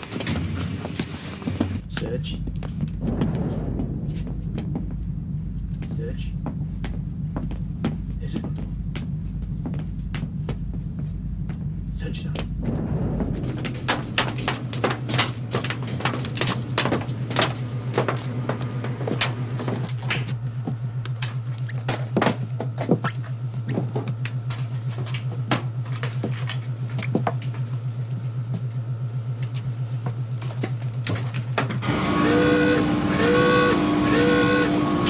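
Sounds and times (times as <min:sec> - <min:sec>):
low pulsing machinery hum: 0:00.0 - 0:35.0.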